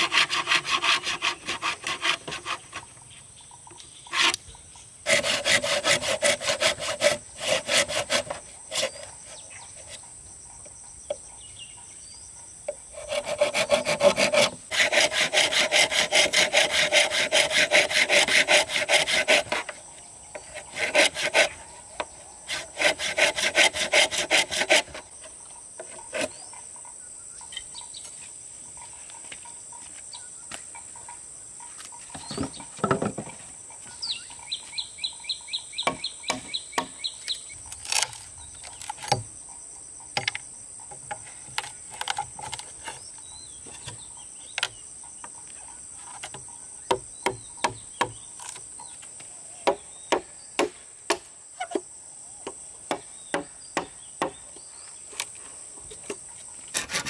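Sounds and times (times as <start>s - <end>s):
insects droning: 0.0s - 57.0s
bird calling: 33.8s - 39.2s.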